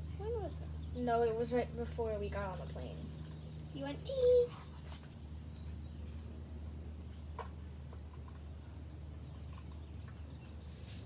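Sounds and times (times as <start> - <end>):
insects chirping: 0.0 - 11.0
low steady hum: 0.0 - 11.0.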